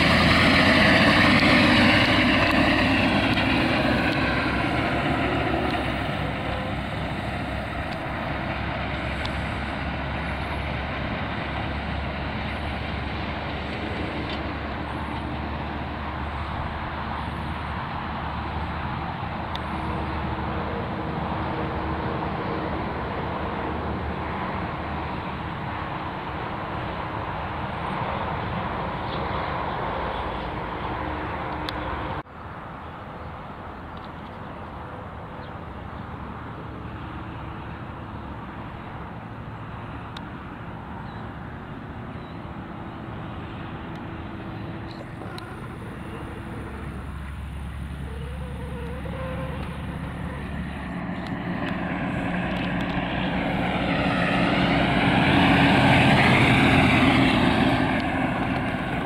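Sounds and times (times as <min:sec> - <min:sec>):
diesel truck driving past: 0:00.0 - 0:59.0.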